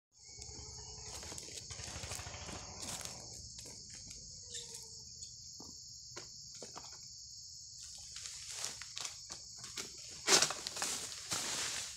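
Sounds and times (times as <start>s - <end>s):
high-pitched insect chorus: 0.2s - 11.9s
clicks in undergrowth: 7.8s - 11.9s
rustling in undergrowth: 7.8s - 11.9s.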